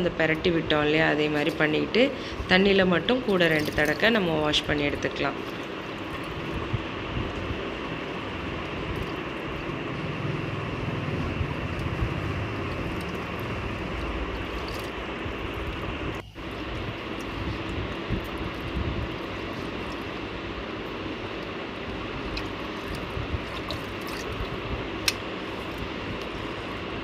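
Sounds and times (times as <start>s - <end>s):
steady background noise with hum: 0.0s - 27.0s
hands swishing fish in water: 16.4s - 26.8s.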